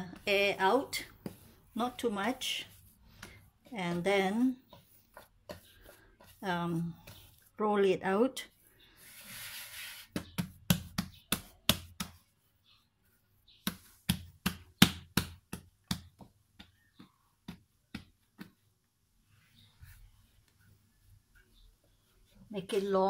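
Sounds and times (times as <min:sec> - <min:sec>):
hands patting bread dough: 0:00.0 - 0:07.9, 0:10.0 - 0:12.5, 0:13.4 - 0:19.0
hands rubbing dough: 0:00.0 - 0:23.0.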